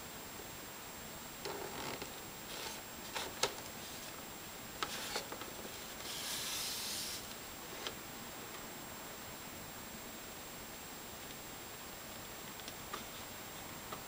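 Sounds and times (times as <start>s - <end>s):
hands rubbing cardboard box: 4.9s - 7.3s
scratchy rustle: 4.9s - 7.8s.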